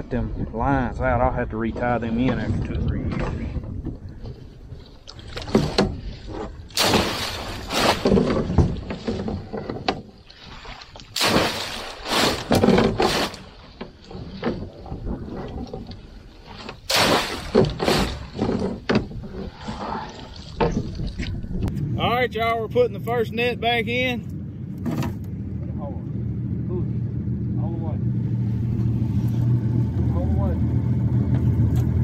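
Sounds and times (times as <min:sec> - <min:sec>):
net dragging over boat edge: 0:03.2 - 0:21.3
water splashing: 0:04.8 - 0:21.7.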